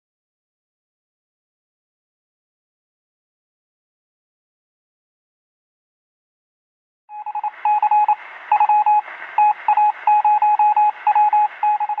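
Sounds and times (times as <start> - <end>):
morse code beeping: 7.1 - 12.0
radio static hiss: 7.3 - 12.0.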